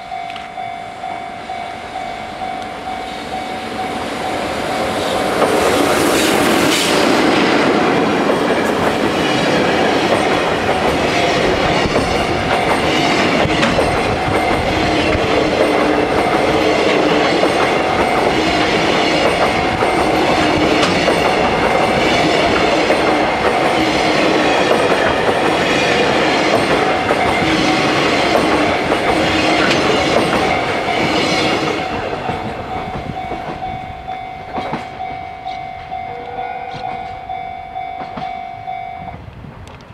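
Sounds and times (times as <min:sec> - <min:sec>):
level crossing bell ringing: 0:00.0 - 0:05.3, 0:12.2 - 0:24.2, 0:28.6 - 0:39.2
train wheels clattering over rail joints: 0:04.9 - 0:35.2.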